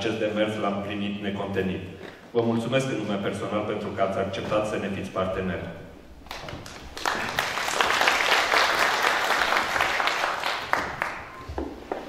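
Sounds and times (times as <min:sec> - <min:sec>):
audience applauding: 0:06.2 - 0:11.5.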